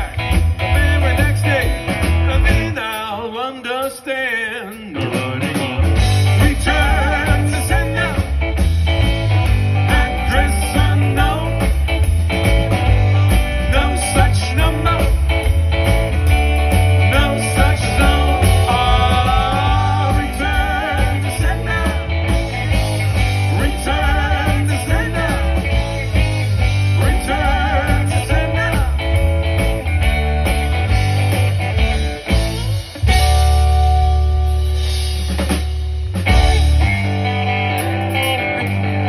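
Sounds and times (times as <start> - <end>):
bending electric guitar lead line: 0.0 - 3.4, 4.3 - 39.0
live rock band playing: 0.0 - 39.0.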